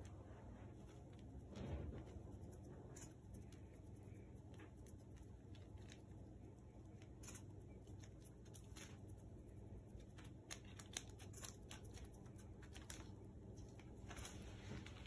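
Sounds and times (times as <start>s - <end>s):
faint rustling and scratching: 0.0s - 15.0s
steady low hum: 0.0s - 15.0s.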